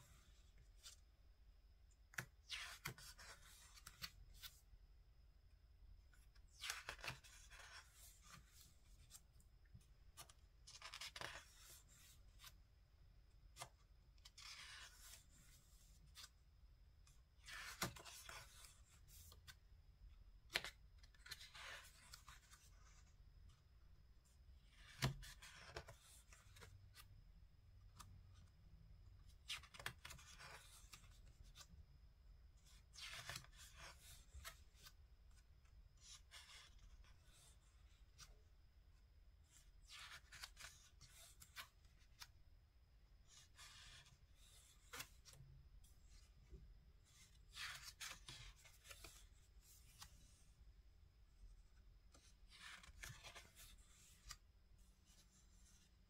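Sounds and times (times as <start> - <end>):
paper pages turning: 47.1 - 50.4, 51.6 - 54.4.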